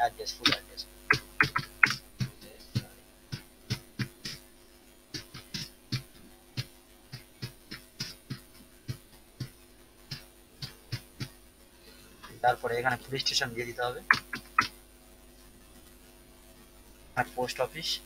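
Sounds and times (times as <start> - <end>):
faint electrical hum: 0.0 - 18.0
keyboard keys clicking: 1.1 - 2.0.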